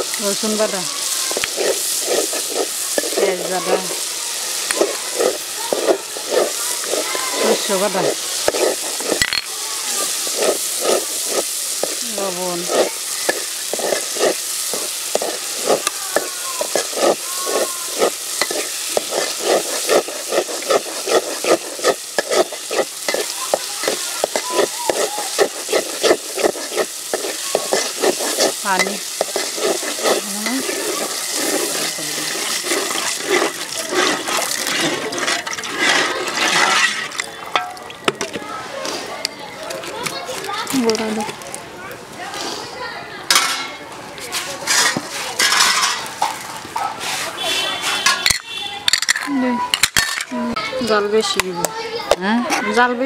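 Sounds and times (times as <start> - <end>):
spice paste sizzling in oil: 0.0 - 37.5, 44.3 - 53.0
metal spatula scraping a pot: 0.0 - 38.1, 44.3 - 46.4
water pouring into a pot: 0.0 - 38.4.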